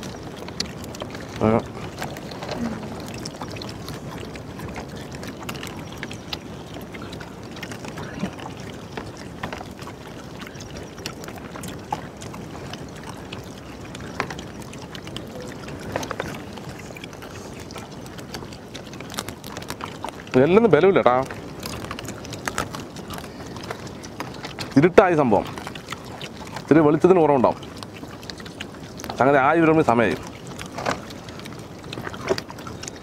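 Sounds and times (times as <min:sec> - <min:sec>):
crunching of eating fried food: 0:00.0 - 0:24.8
faint voice: 0:02.5 - 0:03.0.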